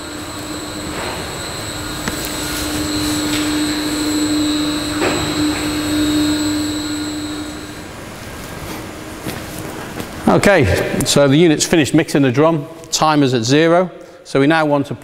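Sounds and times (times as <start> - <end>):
drum mixer motor humming: 0.0 - 9.3.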